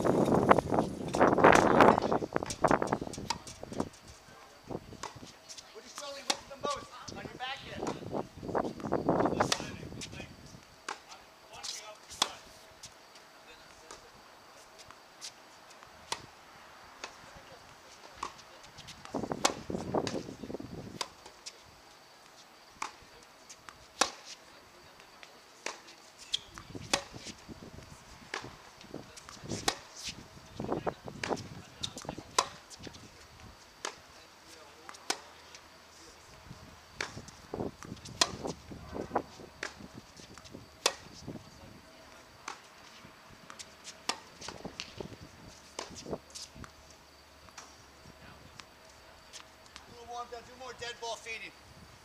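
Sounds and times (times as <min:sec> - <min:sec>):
tennis balls struck by rackets: 0:01.0 - 0:03.9, 0:05.0 - 0:05.3, 0:05.9 - 0:06.8, 0:07.7 - 0:12.5, 0:17.0 - 0:21.5, 0:22.7 - 0:24.4, 0:25.0 - 0:27.5, 0:28.2 - 0:30.2, 0:31.2 - 0:33.0, 0:33.8 - 0:35.7, 0:36.9 - 0:41.2, 0:42.0 - 0:42.7, 0:43.4 - 0:46.8, 0:47.4 - 0:47.9
tennis balls bouncing on hard court: 0:18.2 - 0:20.2, 0:25.6 - 0:27.3, 0:36.9 - 0:38.6, 0:39.5 - 0:41.2, 0:43.4 - 0:45.0.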